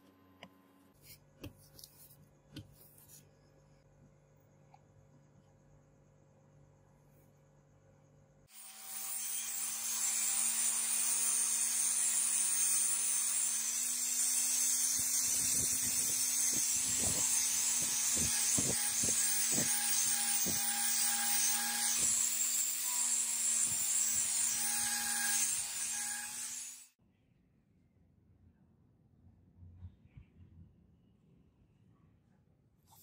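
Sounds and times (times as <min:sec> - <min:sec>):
grinder motor hum: 0:13.4 - 0:26.9.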